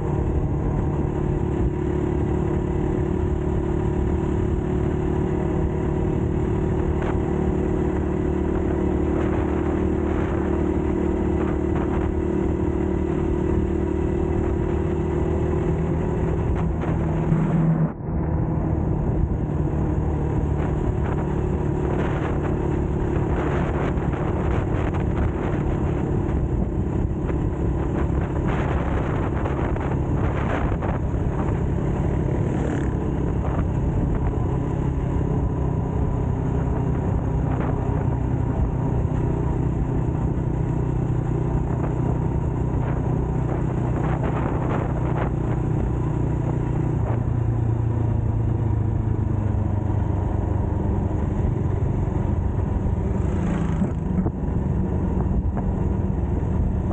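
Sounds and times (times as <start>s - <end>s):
dirt bike engine running: 18.7s - 34.5s, 51.8s - 56.9s.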